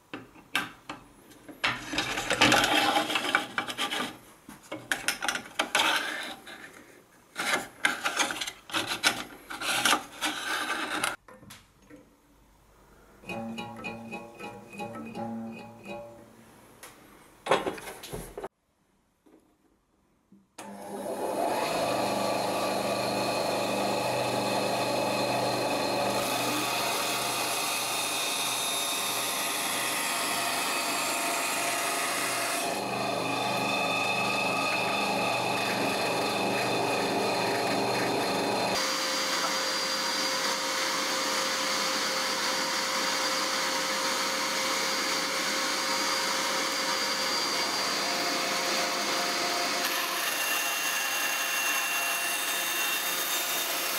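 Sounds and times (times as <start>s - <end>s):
band saw running: 20.6s - 53.9s.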